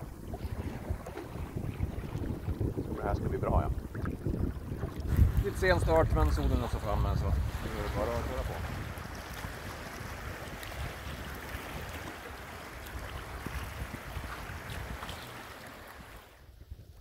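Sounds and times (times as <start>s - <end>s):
wind buffeting microphone: 0.0s - 17.0s
river water rushing and splashing: 7.6s - 16.4s.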